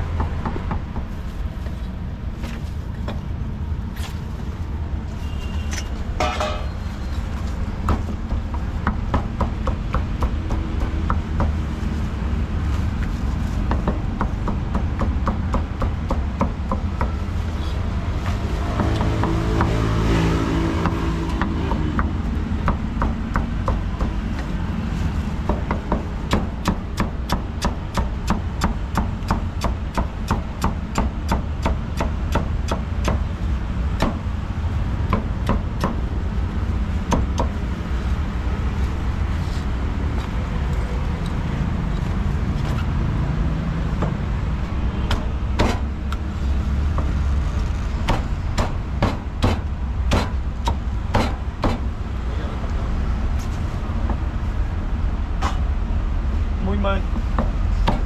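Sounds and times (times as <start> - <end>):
low rumble of street traffic: 0.0 - 58.0
cleaver chopping on wooden board: 45.1 - 45.9, 48.1 - 51.9, 57.4 - 58.0.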